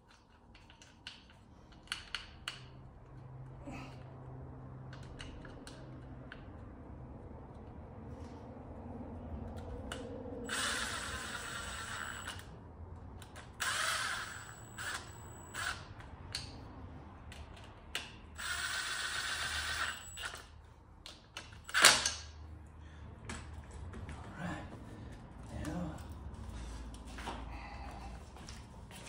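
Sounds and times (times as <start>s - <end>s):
impact driver motor whine: 10.5s - 12.4s, 13.6s - 15.9s.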